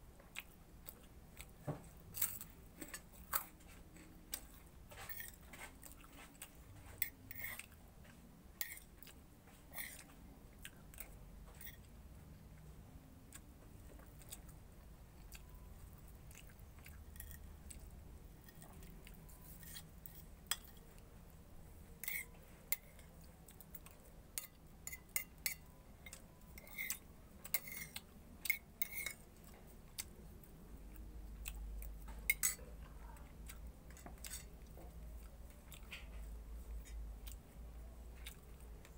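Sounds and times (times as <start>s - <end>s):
person chewing: 0.2s - 12.6s, 13.2s - 21.1s, 21.8s - 38.9s
spoon clinking on a plate: 24.4s - 29.2s, 32.3s - 32.6s.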